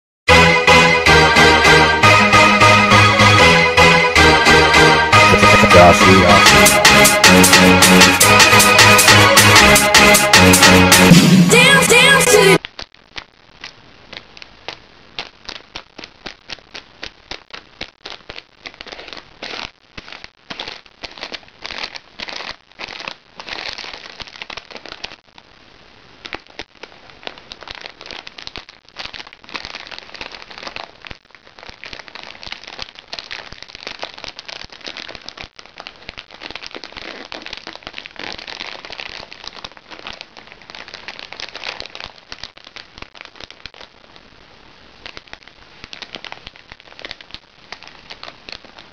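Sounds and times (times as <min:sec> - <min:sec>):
plastic wrapping crackling: 0:12.6 - 0:48.9.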